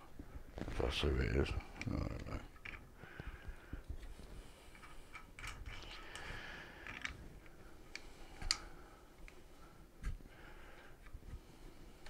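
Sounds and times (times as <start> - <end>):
small clicks of parts fitted: 4.7 - 9.4.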